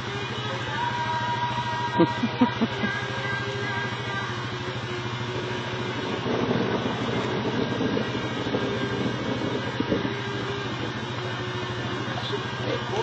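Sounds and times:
engine idling: 0:00.0 - 0:13.0
rain hiss: 0:02.6 - 0:13.0.

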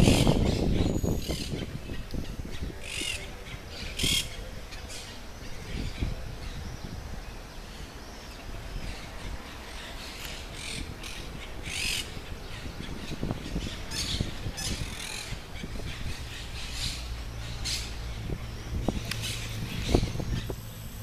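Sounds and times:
birds squawking: 0:00.0 - 0:06.9, 0:08.2 - 0:20.6.

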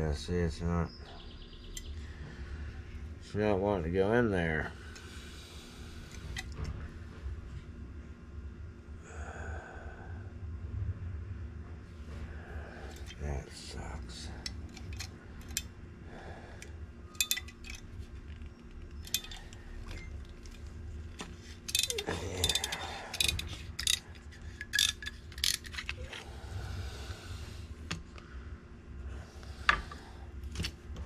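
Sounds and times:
steady low hum: 0:00.0 - 0:31.0
metal parts clicking and tapping: 0:14.4 - 0:15.7, 0:16.6 - 0:26.2.

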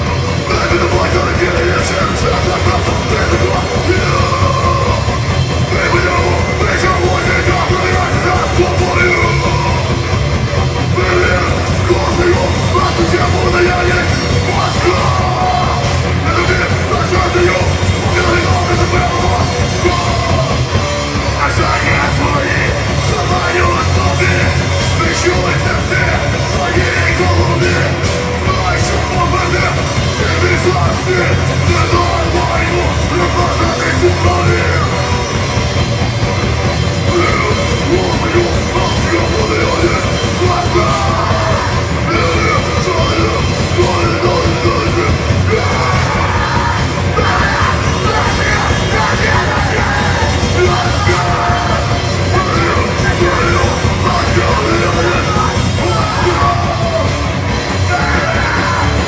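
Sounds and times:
bass guitar: 0:00.0 - 0:59.0
distorted electric guitar: 0:00.0 - 0:59.0
drum kit: 0:00.0 - 0:59.0
vocalist yelling: 0:37.0 - 0:59.0.

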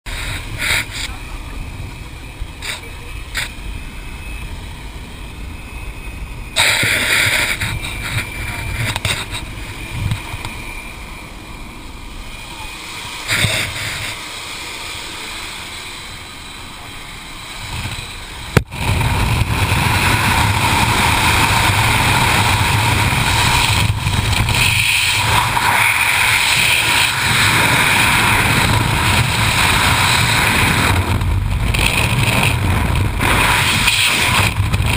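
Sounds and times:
airplane cabin noise: 0:00.1 - 0:34.9
freefall wind rushing: 0:17.2 - 0:34.9.

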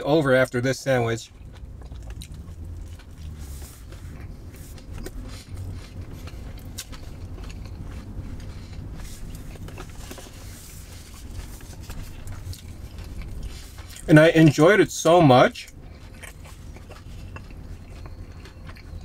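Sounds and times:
car cabin low rumble: 0:00.0 - 0:19.0
chewing with lip smacks: 0:00.4 - 0:19.0.

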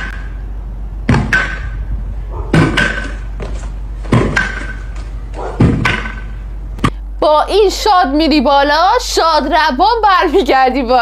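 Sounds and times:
pogo stick landing thuds: 0:01.1 - 0:01.8, 0:02.5 - 0:06.4.

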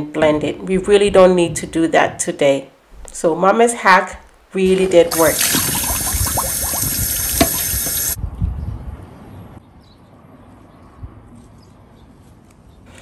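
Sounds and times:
water running from a tap: 0:05.1 - 0:08.2.

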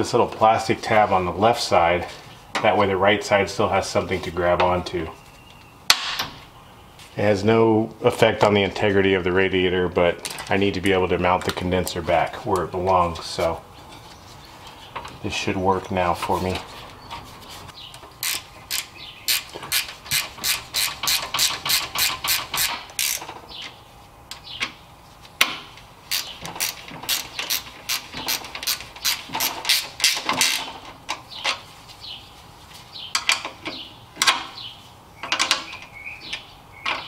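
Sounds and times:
socket ratchet clicking: 0:18.2 - 0:23.2.

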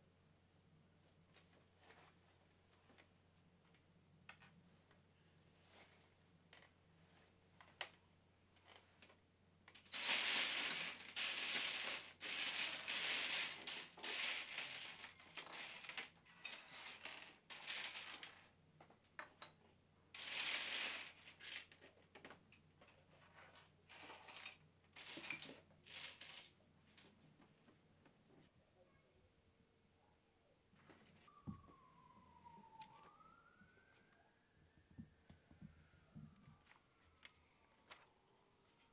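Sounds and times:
plastic bricks rattling and clattering: 0:09.7 - 0:18.5, 0:20.2 - 0:26.6.

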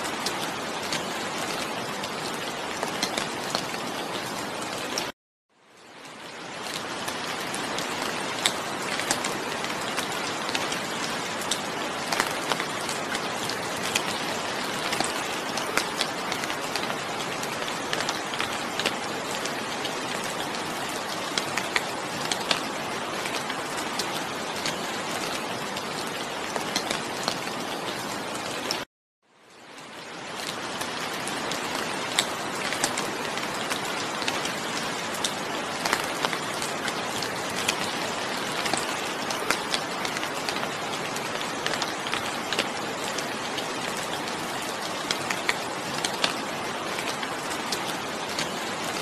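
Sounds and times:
steady rainfall: 0:00.0 - 0:49.0
raindrops ticking on a surface: 0:00.1 - 0:49.0.

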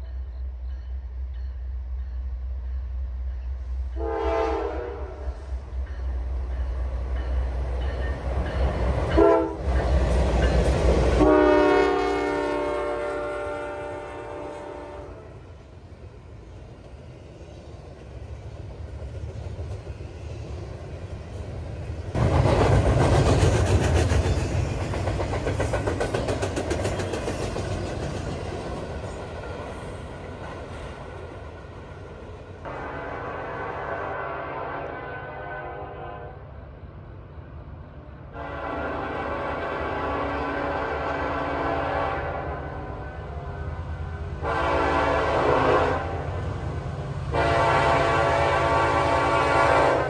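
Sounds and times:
train wheel and rail noise: 0:00.0 - 0:50.0
locomotive air horn blasts: 0:04.0 - 0:05.4, 0:09.1 - 0:09.7, 0:11.2 - 0:15.5, 0:32.6 - 0:36.5, 0:38.3 - 0:43.6, 0:44.4 - 0:46.2, 0:47.3 - 0:50.0.

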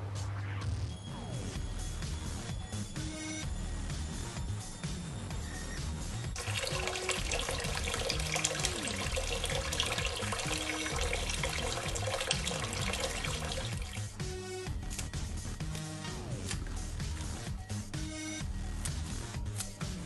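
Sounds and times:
quiet background music: 0:00.0 - 0:20.0
tap water splashing into sink: 0:06.4 - 0:14.2.

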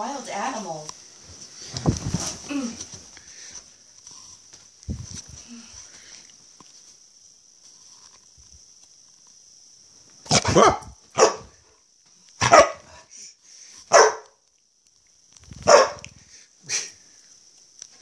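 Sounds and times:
dog barking: 0:10.3 - 0:11.6, 0:12.4 - 0:12.9, 0:13.9 - 0:14.4, 0:15.6 - 0:16.1.

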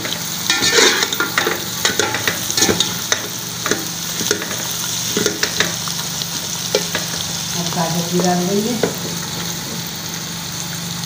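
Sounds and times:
metal spoon scraping a pot: 0:00.0 - 0:05.7
food sizzling in oil: 0:00.0 - 0:11.0.

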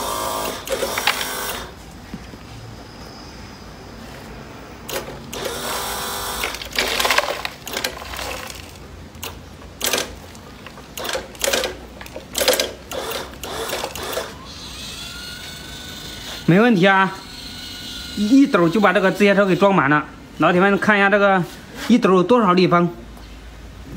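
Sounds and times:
toy excavator motors whining: 0:00.0 - 0:01.8, 0:04.9 - 0:19.8.

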